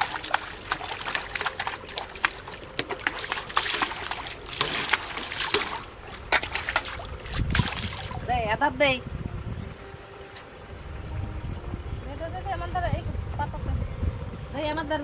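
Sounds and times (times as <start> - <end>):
water splashing and sloshing: 0.0 - 8.7.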